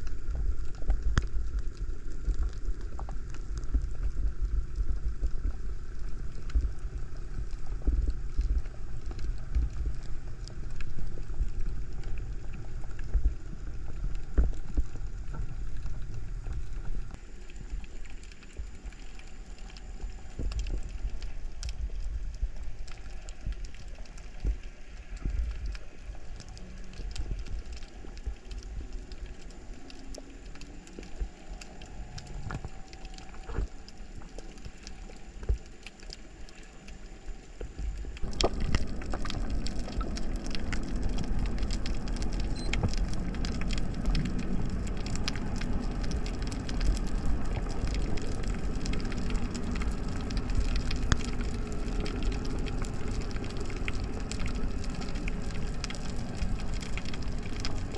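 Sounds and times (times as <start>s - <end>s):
crackle of tiny underwater clicks: 0.0s - 57.9s
low rumble of moving water: 0.0s - 57.9s.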